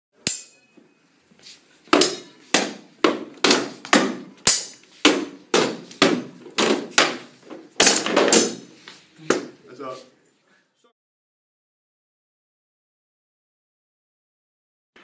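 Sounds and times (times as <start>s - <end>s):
swords striking wooden shields: 0.2s - 0.7s, 1.9s - 9.6s.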